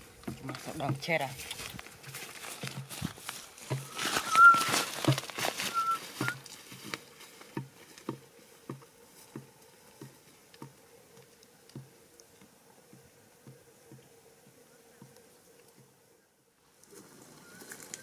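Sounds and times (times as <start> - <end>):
footsteps through dry grass: 0.0 - 10.7
plants rustling: 0.0 - 12.4, 16.7 - 18.0.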